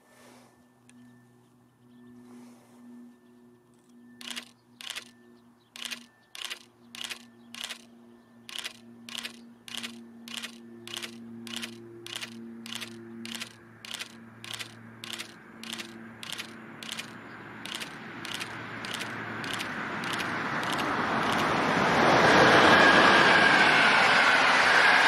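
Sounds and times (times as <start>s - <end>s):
steady low hum: 0.0s - 21.9s
train wheels clacking over rails: 17.7s - 21.5s.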